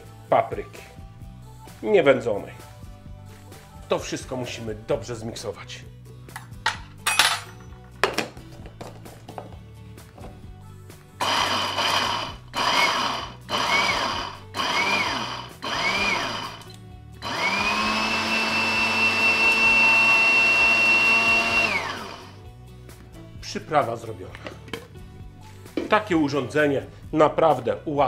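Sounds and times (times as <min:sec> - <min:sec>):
blender grinding spices: 0:11.2 - 0:22.4.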